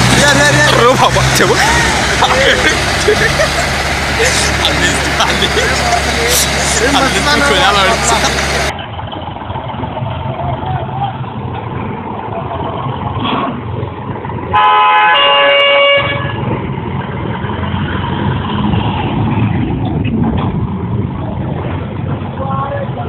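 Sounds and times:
tractor engine running: 0:00.0 - 0:23.0
vehicle horn: 0:14.5 - 0:16.5.

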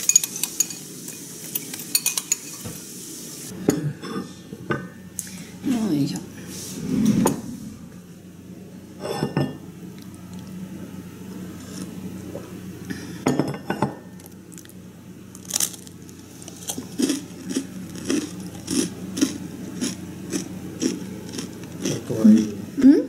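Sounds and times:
crunchy chewing: 0:14.2 - 0:22.6.

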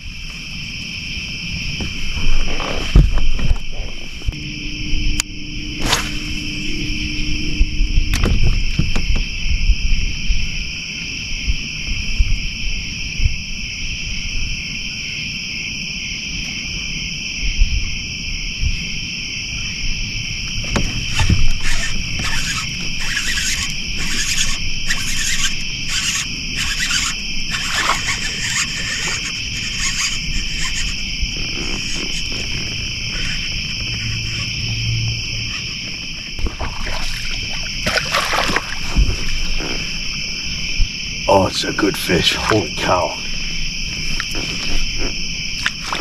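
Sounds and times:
crickets trilling: 0:00.0 - 0:46.0
rasping insect call: 0:00.0 - 0:46.0
low rumble: 0:03.0 - 0:14.5.

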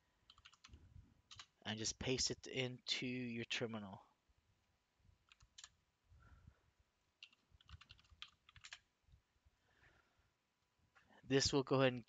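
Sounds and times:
faint keyboard keystrokes: 0:07.2 - 0:08.8.

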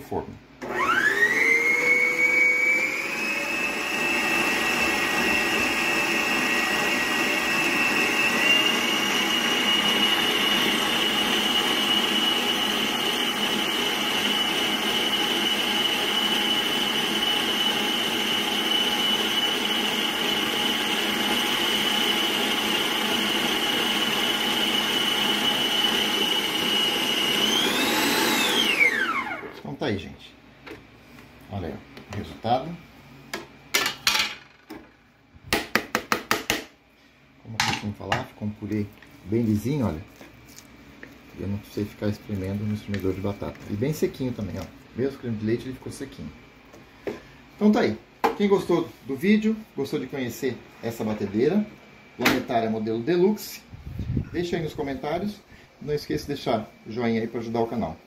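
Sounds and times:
stand mixer motor whine: 0:00.6 - 0:29.6.

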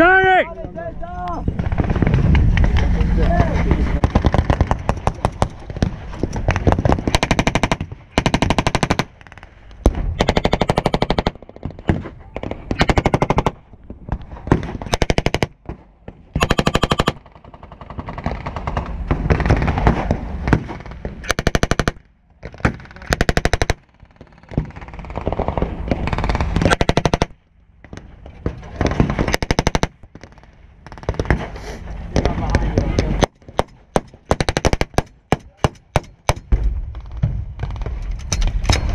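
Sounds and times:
machine gun bursts: 0:16.4 - 0:17.2.

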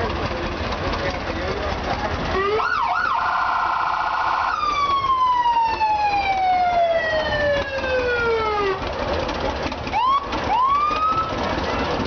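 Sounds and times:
fire truck siren: 0:02.3 - 0:12.0.

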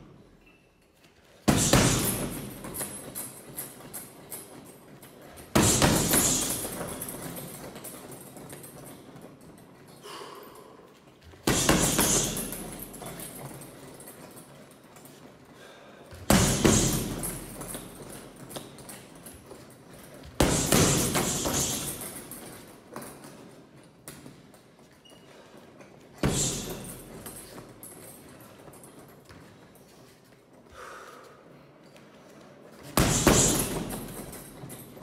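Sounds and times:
strikes on heavy bag: 0:01.4 - 0:02.8, 0:05.5 - 0:07.1, 0:11.4 - 0:13.0, 0:16.2 - 0:17.9, 0:20.4 - 0:22.2, 0:26.2 - 0:27.1, 0:33.0 - 0:34.5.

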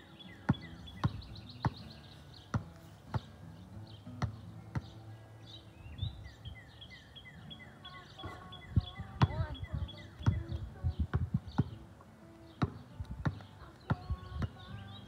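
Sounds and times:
birds chirping: 0:00.0 - 0:15.0
basketball bouncing on asphalt: 0:00.3 - 0:03.4, 0:04.1 - 0:05.1, 0:08.3 - 0:15.0.

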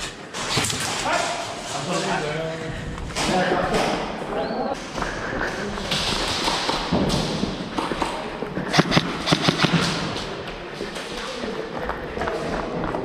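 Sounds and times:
airsoft gun shots: 0:08.7 - 0:10.2.

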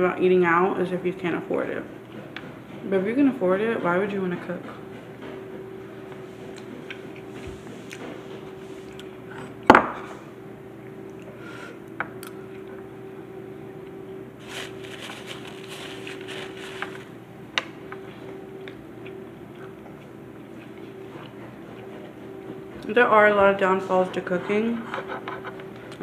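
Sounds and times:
faint hum: 0:02.8 - 0:26.0
rustling: 0:14.4 - 0:17.1.

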